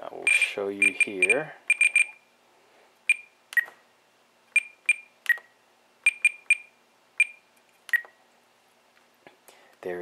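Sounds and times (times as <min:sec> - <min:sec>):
radio transmitter beeps: 0:00.2 - 0:02.2.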